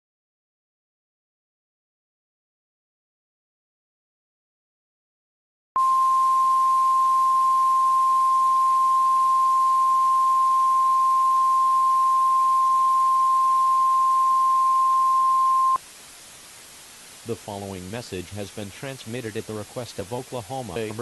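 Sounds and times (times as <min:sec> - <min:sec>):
steady warning alarm tone: 0:05.8 - 0:15.8
radio hiss: 0:12.5 - 0:21.0.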